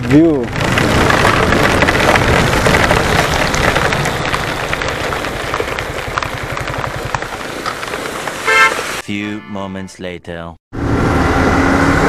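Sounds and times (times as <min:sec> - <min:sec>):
motorcycle engine: 0:00.0 - 0:09.0
wind and rain on microphone: 0:00.5 - 0:09.0.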